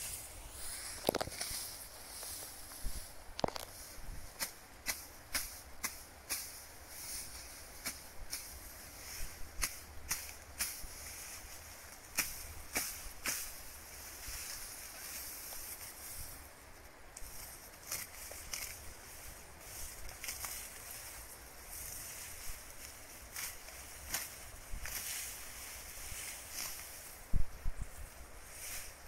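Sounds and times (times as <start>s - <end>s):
steady high hiss: 0.0s - 29.0s
grass stalks snapping: 0.9s - 3.8s, 4.4s - 6.6s, 9.6s - 16.1s, 17.1s - 27.2s.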